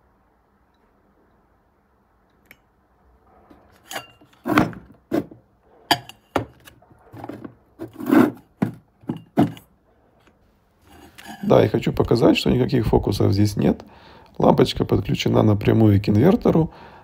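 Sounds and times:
handling objects on wooden table: 3.3 - 11.5.

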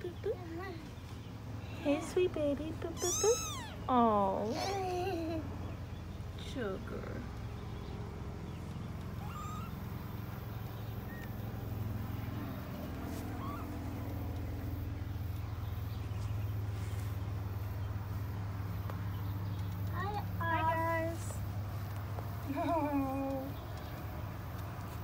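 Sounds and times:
low steady hum: 0.0 - 25.0
kittens mewing: 2.9 - 3.9, 9.1 - 10.3, 13.1 - 14.2.

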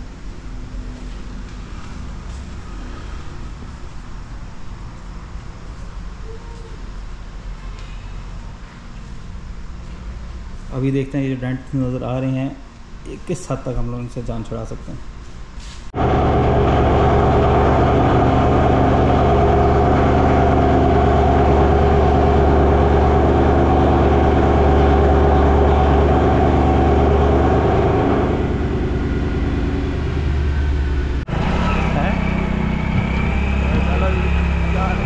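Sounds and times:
car engine idling: 16.0 - 31.3, 31.9 - 35.0.

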